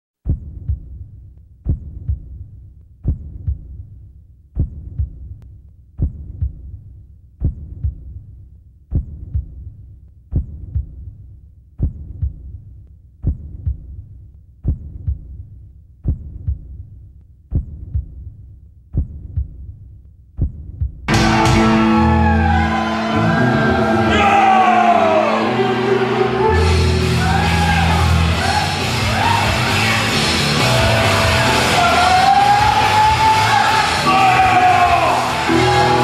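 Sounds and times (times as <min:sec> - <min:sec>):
heartbeat double thumps: 0:00.2 - 0:04.0, 0:04.6 - 0:05.4, 0:06.0 - 0:08.3, 0:08.9 - 0:21.2.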